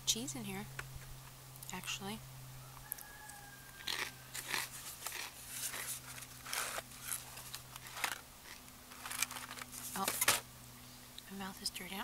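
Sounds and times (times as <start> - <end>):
steady low hum: 0.0 - 12.0
person chewing and smacking: 3.8 - 7.9.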